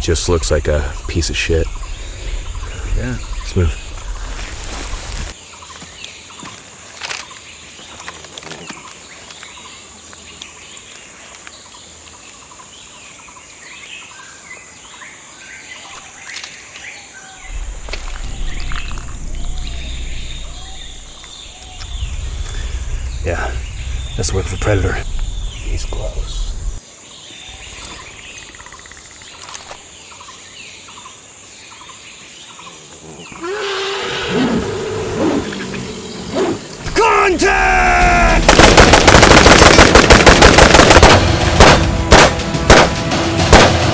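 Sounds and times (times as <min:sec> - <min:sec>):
small birds chirping: 0:00.0 - 0:38.6
outdoor ambience: 0:00.0 - 0:43.9
creature growl-roar: 0:33.0 - 0:36.6.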